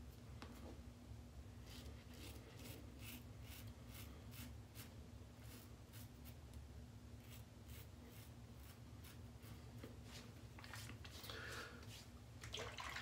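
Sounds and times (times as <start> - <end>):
razor scraping stubble: 1.6 - 6.4, 7.2 - 9.6.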